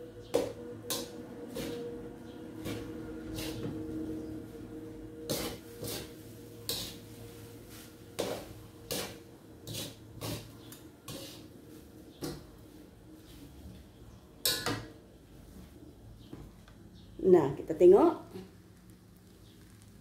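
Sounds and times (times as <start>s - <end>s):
spatula scraping a metal wok: 0.3s - 1.9s, 2.6s - 4.0s, 5.2s - 12.4s.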